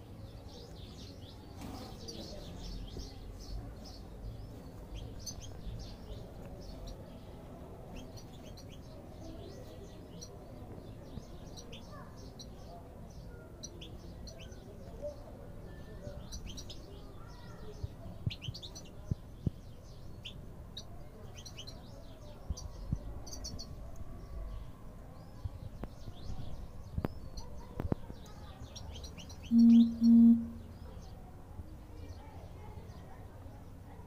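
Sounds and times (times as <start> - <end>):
goldfinches chirping: 29.1 - 30.9
short loud low beeps: 29.5 - 30.8.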